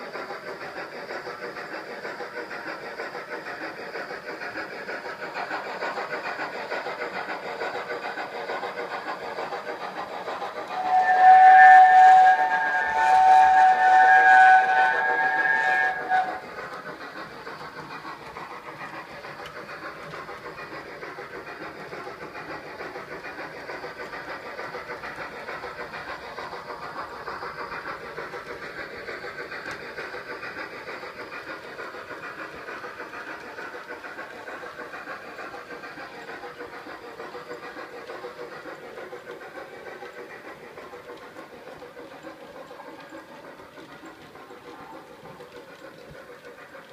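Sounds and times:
model train running on track: 0.0s - 46.9s
steam locomotive running sound: 0.0s - 46.9s
steam whistle from small speaker: 10.8s - 16.4s.

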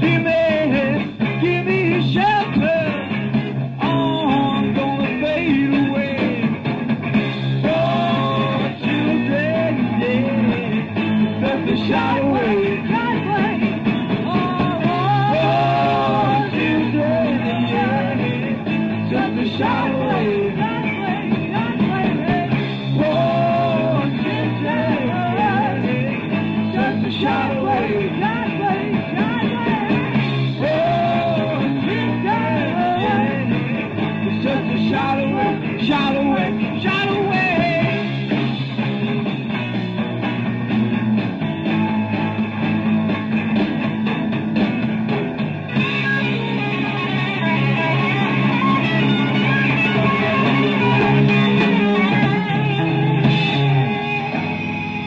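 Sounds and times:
person singing: 0.0s - 3.2s, 3.8s - 6.6s, 7.6s - 38.7s, 45.8s - 55.0s
rock and roll band playing: 0.0s - 55.0s.

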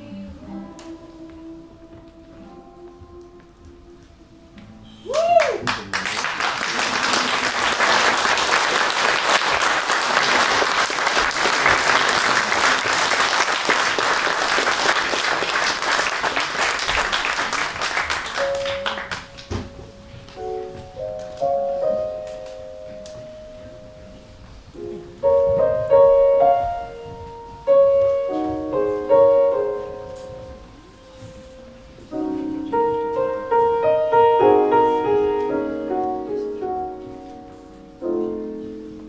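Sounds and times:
audience applauding: 5.1s - 19.6s
held piano notes: 18.0s - 39.0s.

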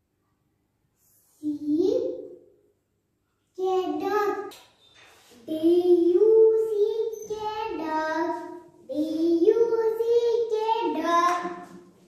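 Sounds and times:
young child singing: 5.4s - 11.8s.

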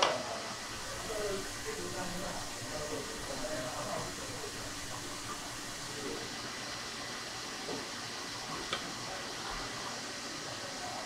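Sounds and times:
kitchen background hiss: 0.0s - 11.0s.

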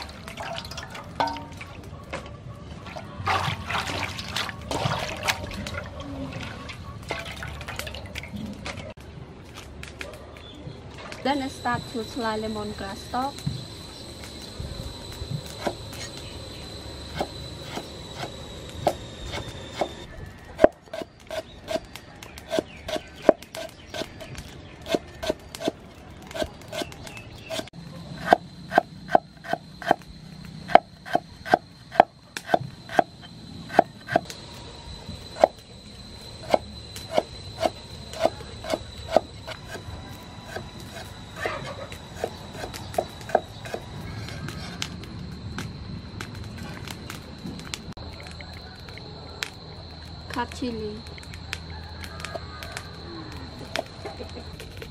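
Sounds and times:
cleaver chopping on wooden block: 42.2s - 43.8s.

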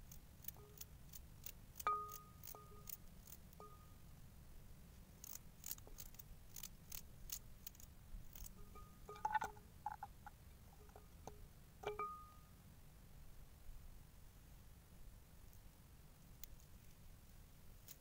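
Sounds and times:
short ringing clinks: 1.8s - 3.0s, 3.6s - 4.0s, 8.6s - 10.0s, 11.8s - 12.5s.

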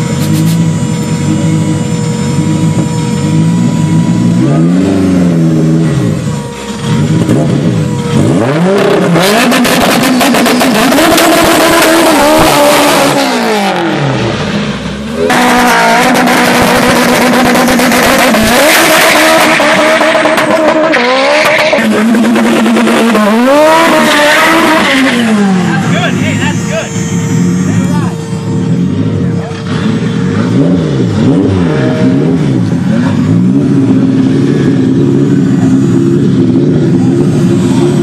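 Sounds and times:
car engines revving hard: 0.0s - 38.0s
tyres spinning in burnout: 15.2s - 28.2s.

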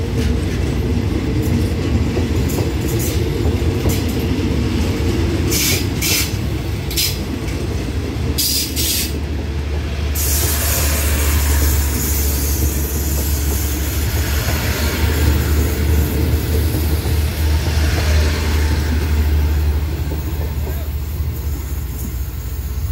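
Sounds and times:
train wheels rumbling on rails: 0.0s - 22.9s
hiss: 5.5s - 6.4s, 8.4s - 9.2s, 10.1s - 16.1s.

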